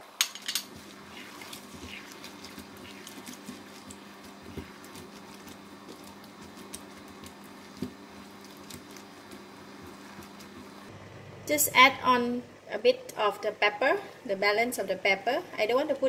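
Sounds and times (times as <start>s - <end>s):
steady low hum: 0.6s - 15.7s
spatula scraping a pan: 0.7s - 5.6s.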